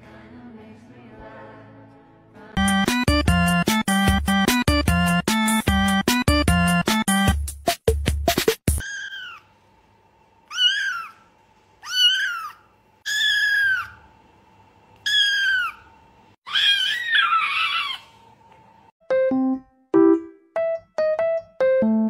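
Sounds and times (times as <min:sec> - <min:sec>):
kitten meowing: 0:08.8 - 0:09.4, 0:10.5 - 0:11.2, 0:11.8 - 0:14.0, 0:15.0 - 0:15.8, 0:16.5 - 0:18.0.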